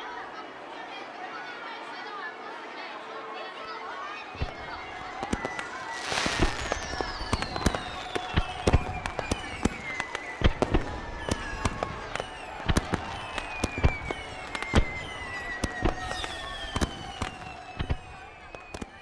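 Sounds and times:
falling firework whistles: 4.4s - 19.0s
fireworks bangs and pops: 4.4s - 19.0s.

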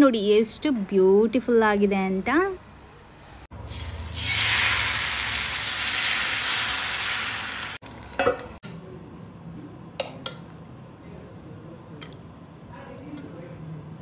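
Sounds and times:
food sizzling in a pan: 3.6s - 8.6s.

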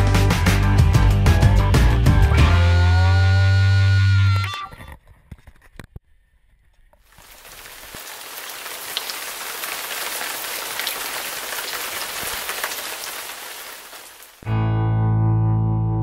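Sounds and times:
raindrops ticking: 7.0s - 14.4s
heavy rain falling: 7.1s - 14.4s.

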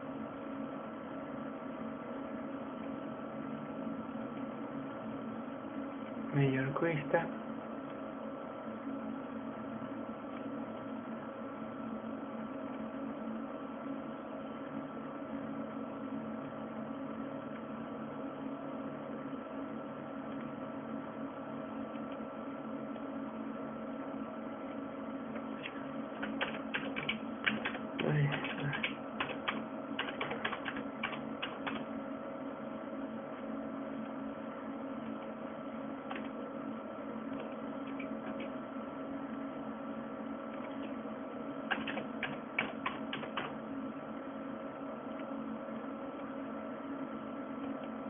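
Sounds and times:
steady electrical hum: 0.0s - 48.0s
typing on computer keyboard: 26.2s - 31.9s, 41.7s - 43.6s.

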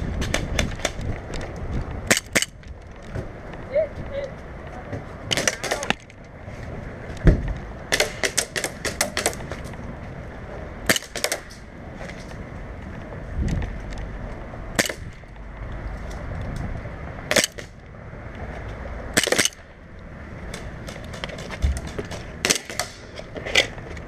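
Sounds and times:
airsoft guns firing: 5.3s - 6.0s, 7.9s - 9.4s, 10.9s - 11.5s, 21.8s - 23.0s
dull thump: 7.2s - 7.5s.

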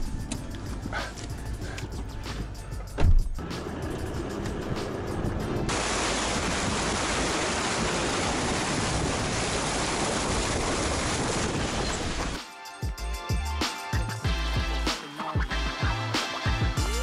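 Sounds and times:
river water rushing against car: 5.7s - 12.4s.

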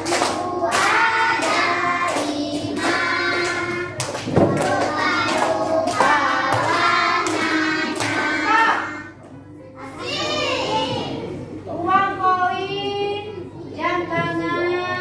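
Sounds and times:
hand claps: 0.0s - 8.3s
children and teacher singing: 0.0s - 9.2s, 9.8s - 11.4s.

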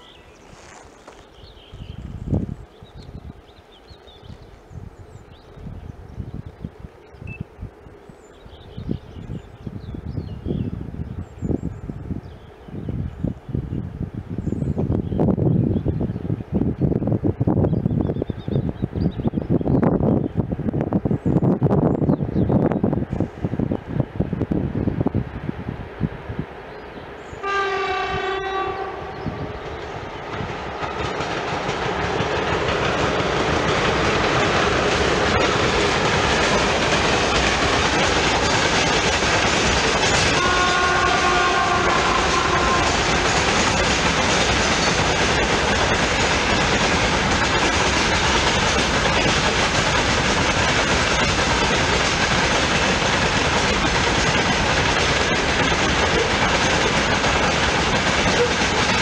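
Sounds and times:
train wheels on rails: 0.0s - 59.0s
locomotive horn: 27.4s - 29.5s, 40.3s - 43.4s.

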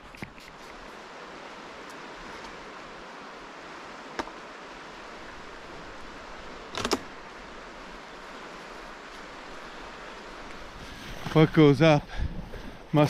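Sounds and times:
sharp click: 6.7s - 7.1s.

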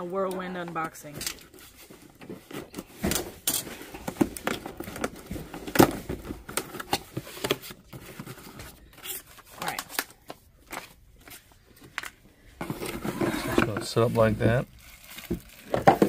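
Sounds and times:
cardboard scrapes rustles and knocks: 12.6s - 14.5s.

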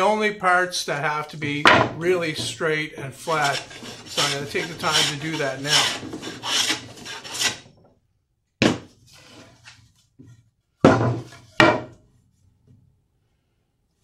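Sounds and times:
hand plane shaving wood: 3.2s - 7.6s.

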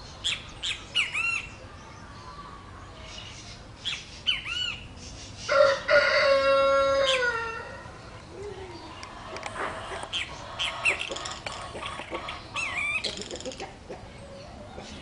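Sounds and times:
bird chirping: 0.0s - 5.6s, 7.9s - 15.0s
rooster crowing: 5.5s - 7.9s.

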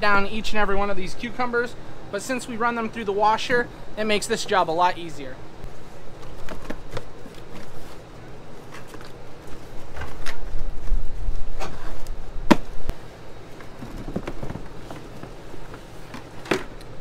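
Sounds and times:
cardboard boxes being folded: 5.7s - 12.0s.

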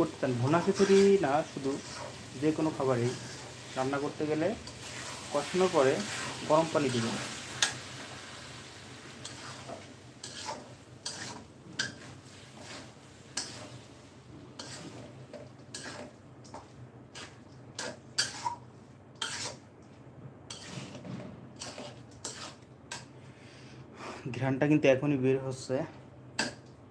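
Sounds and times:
metal spatula scraping wok: 0.0s - 7.9s, 9.1s - 18.6s, 19.2s - 19.6s, 20.5s - 23.1s.

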